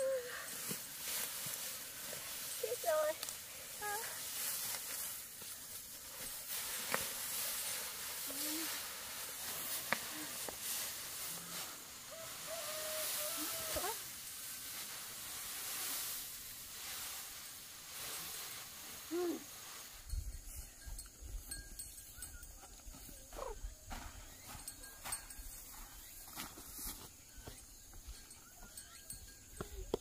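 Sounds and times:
dry straw rustling and crackling: 0:00.0 - 0:20.2.

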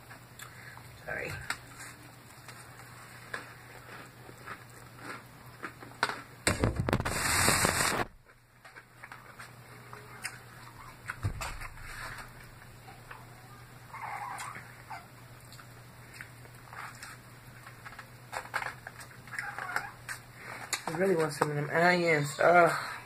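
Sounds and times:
chewing salad crunches: 0:01.5 - 0:06.3
loud crackling rustle: 0:06.5 - 0:08.2.

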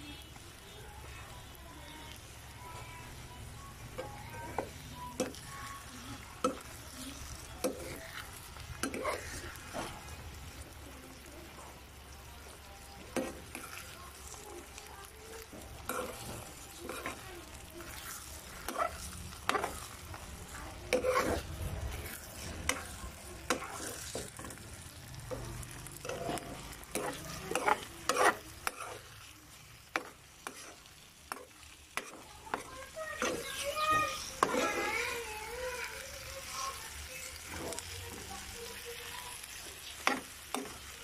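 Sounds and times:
oil sizzling: 0:00.0 - 0:41.0
metal spoon scraping frying pan: 0:03.9 - 0:10.2, 0:12.9 - 0:29.3, 0:29.9 - 0:35.2, 0:39.2 - 0:41.0.

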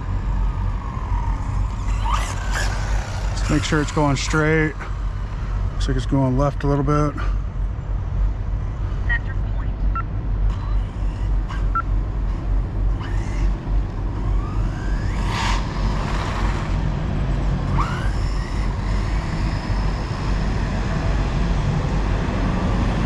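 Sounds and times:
rc car motor whining: 0:00.0 - 0:05.6, 0:10.5 - 0:20.8.

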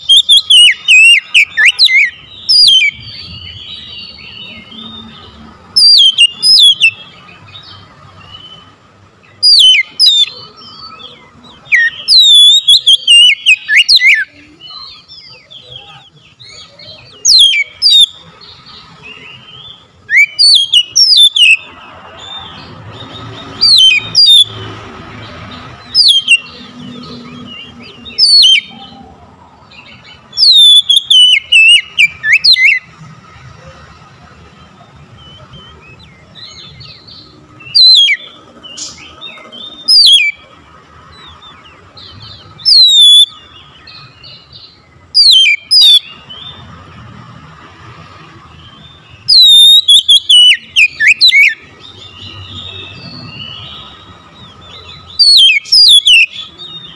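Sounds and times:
bird singing whistled phrases: 0:00.0 - 0:05.0, 0:05.8 - 0:07.0, 0:09.4 - 0:18.2, 0:19.2 - 0:21.7, 0:23.2 - 0:24.6, 0:25.8 - 0:29.0, 0:29.8 - 0:32.9, 0:35.2 - 0:40.4, 0:42.0 - 0:44.5, 0:45.2 - 0:46.5, 0:48.7 - 0:56.9.

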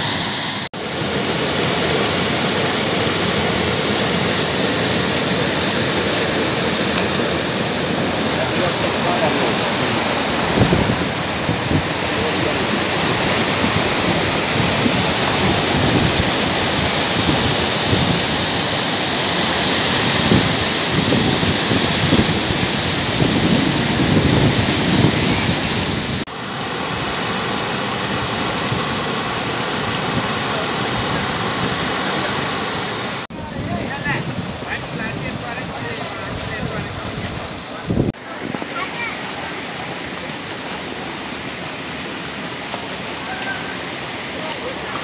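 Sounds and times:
waterfall rushing and splashing: 0:00.0 - 0:45.0.

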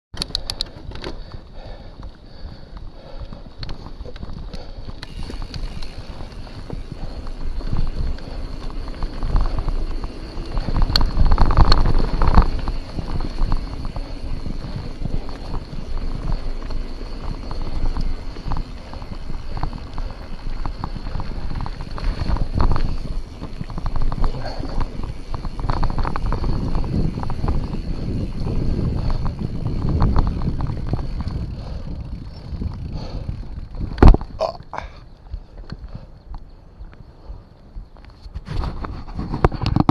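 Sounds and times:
bike rattling over stones: 0:00.2 - 0:39.9
wind rumbling on microphone: 0:00.2 - 0:39.9
tyres crunching on gravel: 0:02.8 - 0:31.6.

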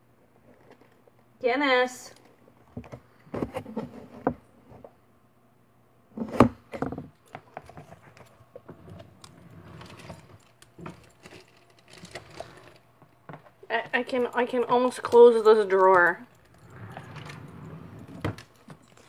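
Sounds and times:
drawer sliding shut: 0:08.7 - 0:12.8, 0:16.4 - 0:18.8.

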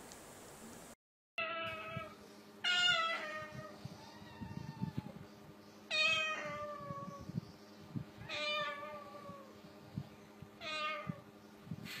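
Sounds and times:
cockatoo imitating cat meow: 0:02.7 - 0:05.1.

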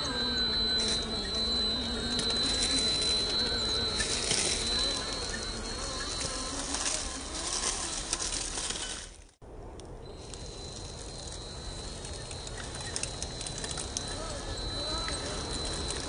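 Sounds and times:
electric motor whine: 0:00.0 - 0:09.3, 0:10.1 - 0:16.0
thin high whine: 0:00.0 - 0:09.3, 0:10.0 - 0:16.0
tyres scraping on ground: 0:00.0 - 0:09.4.

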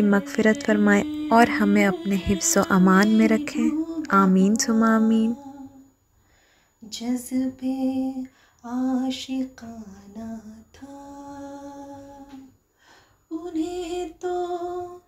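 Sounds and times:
woman humming: 0:00.0 - 0:05.5.

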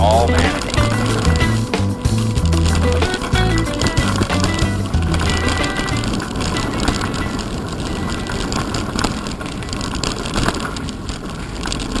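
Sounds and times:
bike rattling: 0:00.0 - 0:12.0.

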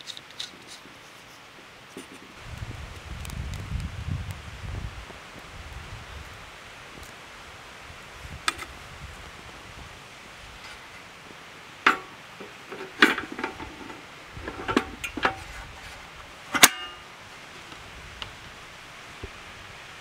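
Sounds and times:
faint steady hiss: 0:00.0 - 0:20.0
metal stove parts clanking: 0:11.8 - 0:15.6, 0:16.5 - 0:17.0.

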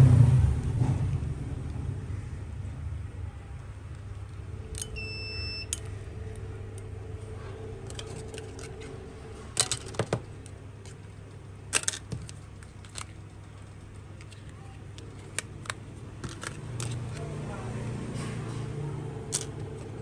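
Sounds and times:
steady low hum: 0:00.0 - 0:20.0
short electronic beep: 0:04.8 - 0:05.8
clicks of small hard parts: 0:09.6 - 0:11.0, 0:11.7 - 0:17.2, 0:19.3 - 0:20.0.

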